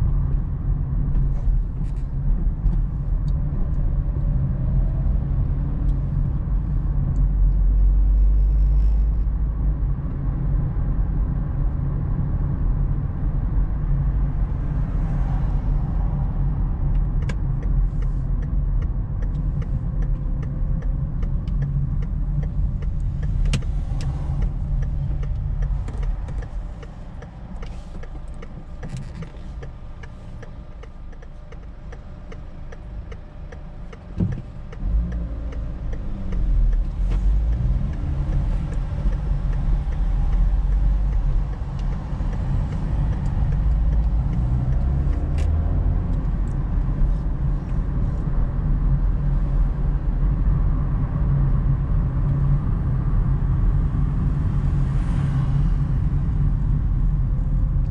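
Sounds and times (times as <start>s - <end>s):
car road noise rumble: 0.0s - 57.9s
faint ticks: 17.0s - 45.6s.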